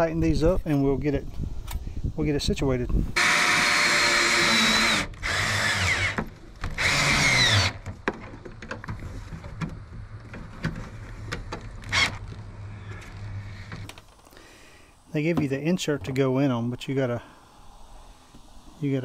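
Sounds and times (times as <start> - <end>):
cordless drill whine: 3.2 - 7.8.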